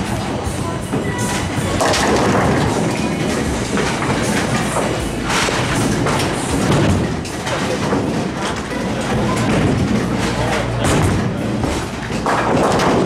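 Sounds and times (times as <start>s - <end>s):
bowling alley rumble and thuds: 0.0s - 13.0s
bowling ball crashing into pins: 0.9s - 13.0s.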